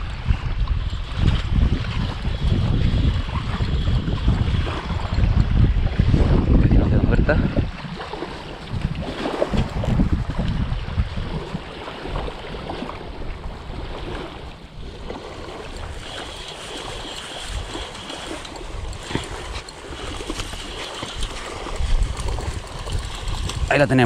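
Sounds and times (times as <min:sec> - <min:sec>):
wind buffeting microphone: 0:00.0 - 0:24.0
low surf: 0:03.2 - 0:24.0
spinning reel cranking: 0:15.7 - 0:23.8.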